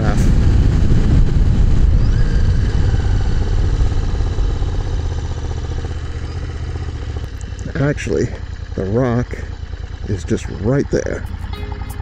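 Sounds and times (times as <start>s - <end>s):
wind rumble on microphone: 0.0s - 5.6s
motorcycle engine running: 0.0s - 12.0s.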